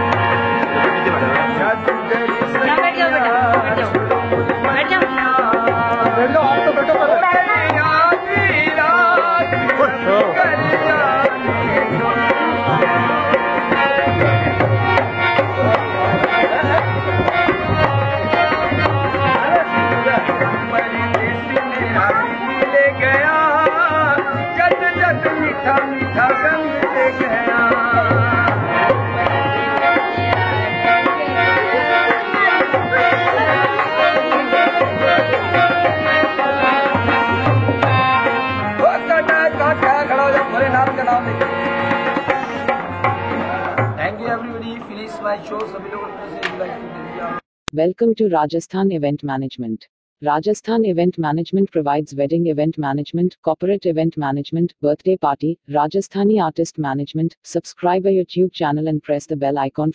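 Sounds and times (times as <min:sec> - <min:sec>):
hand drum rhythm: 0:00.0 - 0:44.4
folk music melody: 0:00.0 - 0:47.4.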